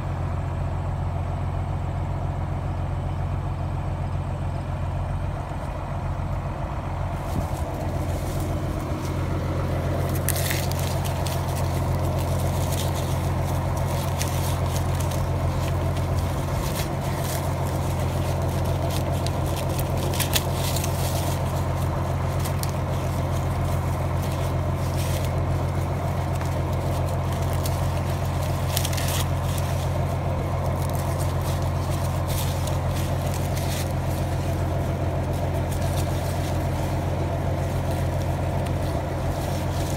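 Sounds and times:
tractor engine idling: 0.0 - 39.9
corn husks crackling and rustling: 4.5 - 39.9.

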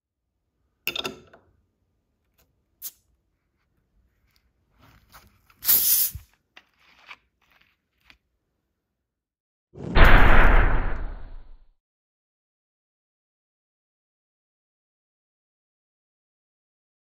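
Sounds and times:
carbonation hissing: 5.6 - 6.3.

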